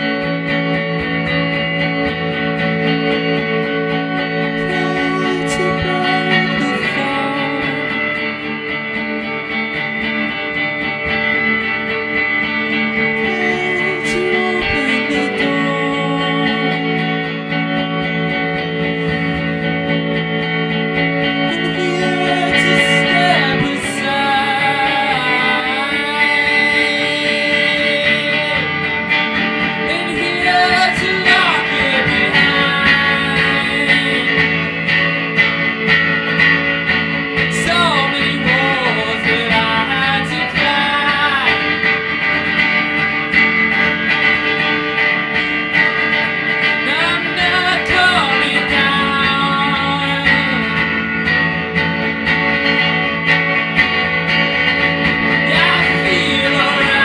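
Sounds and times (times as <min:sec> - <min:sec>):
electric guitar chords: 0:00.0 - 0:57.0
man singing wordless vocals: 0:04.4 - 0:08.2, 0:13.1 - 0:17.3, 0:21.4 - 0:34.9, 0:37.5 - 0:42.1, 0:46.8 - 0:51.1, 0:55.4 - 0:57.0.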